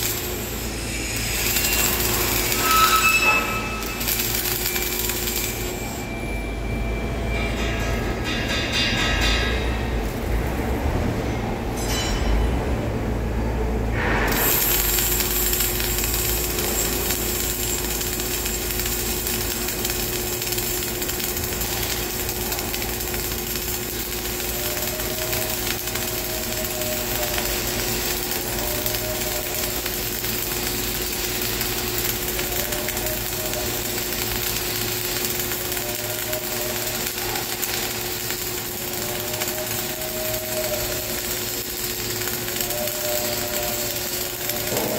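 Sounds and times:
welding arc crackling hiss: 0:00.0 - 0:11.1, 0:13.9 - 0:44.9
faint whine: 0:00.4 - 0:08.2.

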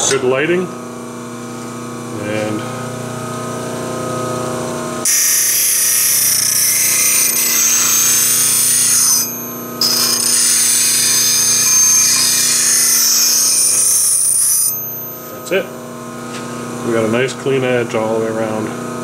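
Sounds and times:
tool grinding hiss: 0:05.0 - 0:15.6
bench grinder humming: 0:05.0 - 0:16.0.

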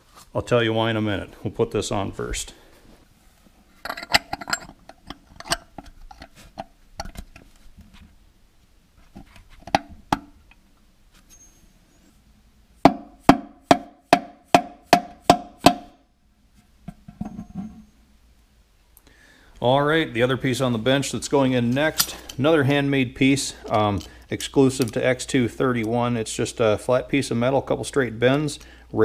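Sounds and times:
metal clicks and light knocks: 0:03.8 - 0:07.4.

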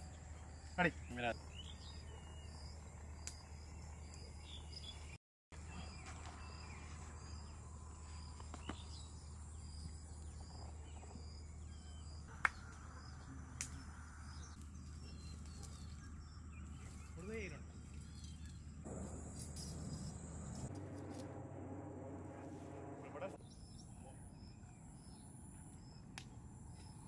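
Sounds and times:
steady low hum: 0:17.6 - 0:26.7.

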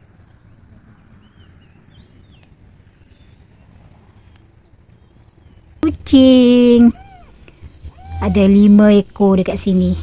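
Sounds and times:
bird chirps: 0:05.4 - 0:10.0
high-pitched insect drone: 0:05.8 - 0:10.0.

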